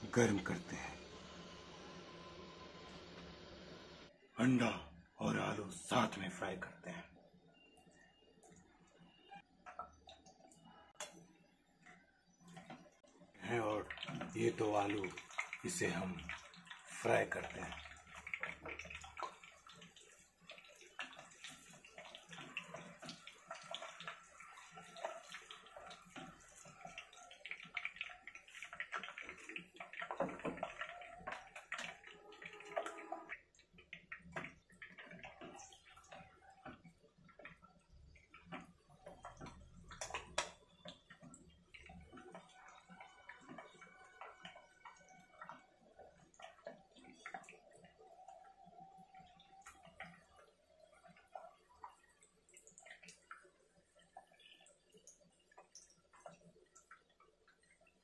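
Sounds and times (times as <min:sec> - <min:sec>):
food sizzling in hot oil: 0:13.5 - 0:40.7.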